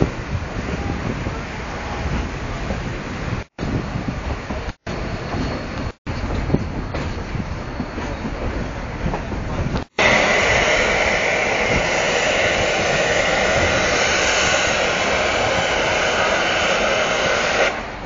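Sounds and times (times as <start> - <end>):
train rumble and clatter: 0.0 - 18.0
steam hissing loudly: 10.0 - 18.0.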